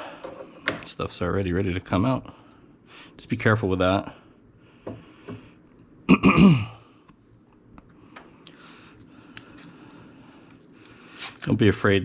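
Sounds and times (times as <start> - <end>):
man clearing throat: 6.1 - 6.8.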